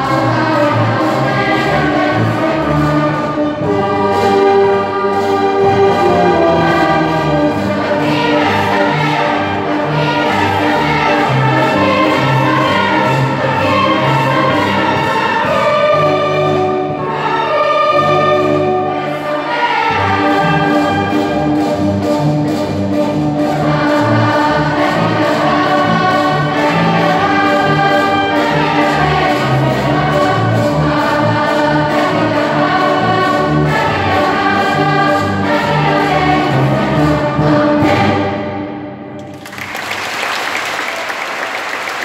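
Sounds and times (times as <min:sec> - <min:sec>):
children's choir singing: 0:00.0 - 0:39.6
orchestra strings and brass: 0:00.0 - 0:42.0
audience applause: 0:39.2 - 0:42.0.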